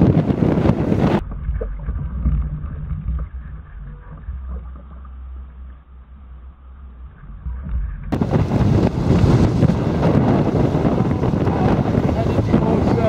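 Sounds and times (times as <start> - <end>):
wind blast on microphone: 0.0 - 3.6, 8.1 - 13.0
muffled water against hull: 0.0 - 13.0.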